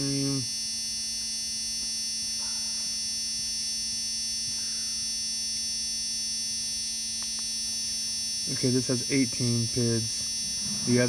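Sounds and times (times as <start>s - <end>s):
electrical hum: 0.0s - 11.0s
high-pitched whine: 8.5s - 11.0s.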